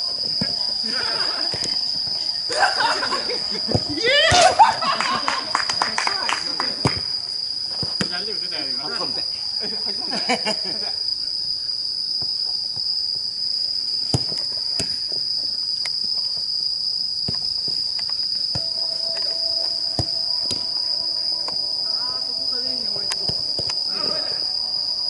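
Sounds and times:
insects trilling: 0:00.0 - 0:25.0
ball being kicked: 0:14.1 - 0:15.0, 0:18.5 - 0:19.2, 0:20.0 - 0:20.7.

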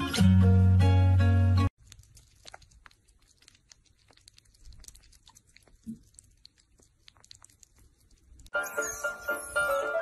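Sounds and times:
wet clicks of lapping and chewing: 0:01.8 - 0:08.5.

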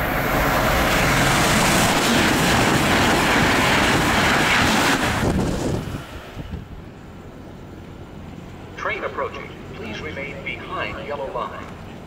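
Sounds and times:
train passing at high speed: 0:00.0 - 0:12.0.

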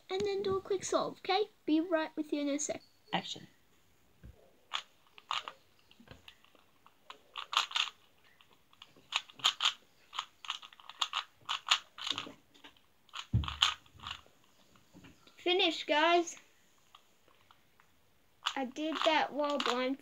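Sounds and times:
puzzle cube plastic layers clicking: 0:04.7 - 0:14.2, 0:16.9 - 0:20.0
dull thump: 0:13.3 - 0:13.8.

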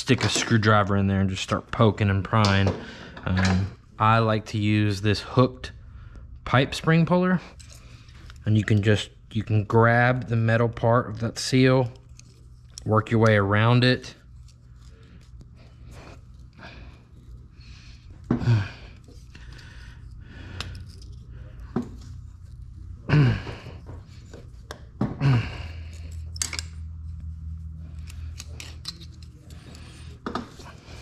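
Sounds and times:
person grunting: 0:23.1 - 0:23.8, 0:25.2 - 0:25.9
metal pick scraping and clicking: 0:28.0 - 0:30.0.

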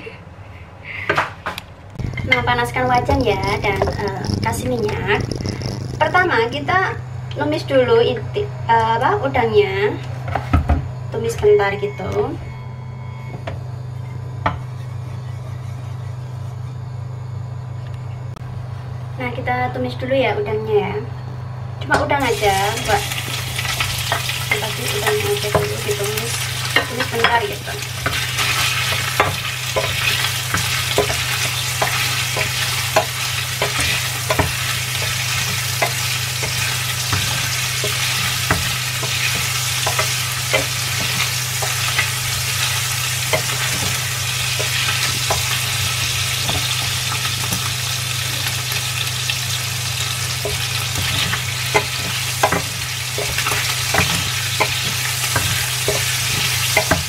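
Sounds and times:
steady low hum: 0:00.0 - 0:57.0
shrimp sizzling in hot oil: 0:22.2 - 0:57.0
spatula scraping and tapping pan: 0:26.6 - 0:47.7, 0:50.4 - 0:57.0.

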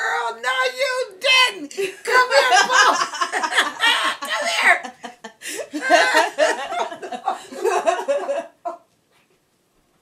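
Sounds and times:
woman laughing: 0:01.8 - 0:08.8
woman's excited exclamations: 0:03.8 - 0:04.9.

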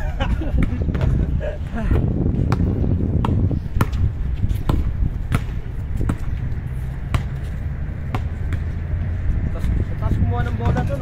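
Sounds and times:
basketball bouncing: 0:02.4 - 0:06.4, 0:07.0 - 0:08.8.

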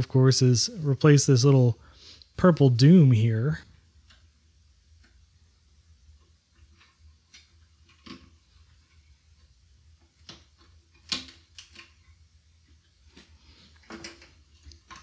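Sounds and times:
small sharp clicks and scrapes: 0:06.2 - 0:15.0.

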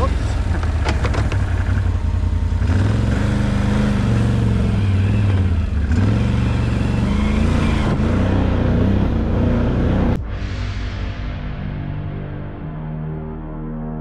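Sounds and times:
atv engine revving: 0:00.0 - 0:10.2.

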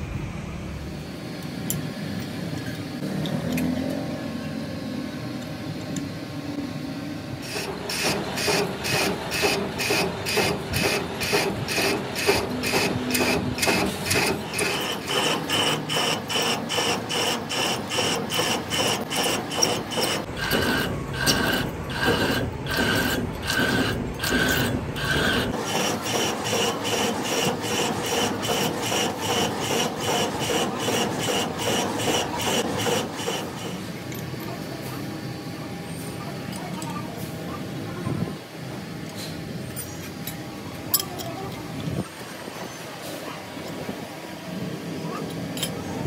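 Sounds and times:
machine tool scraping metal: 0:07.4 - 0:33.9.

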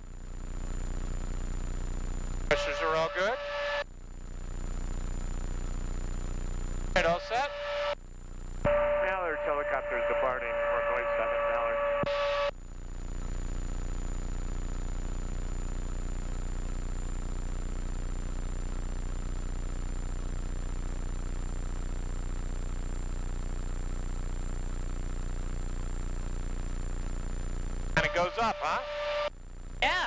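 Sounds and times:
helicopter engine and rotor drone: 0:04.5 - 0:07.9, 0:08.6 - 0:12.6.

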